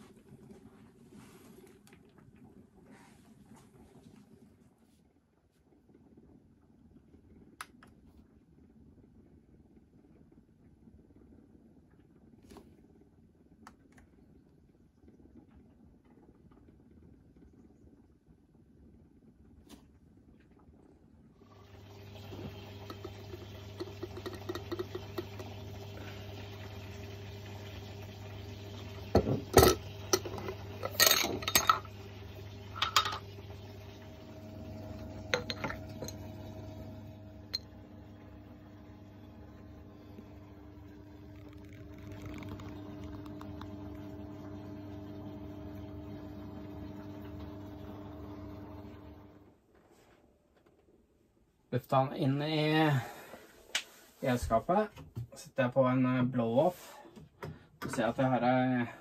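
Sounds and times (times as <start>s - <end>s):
glass and metal clinking: 35.3s - 36.2s.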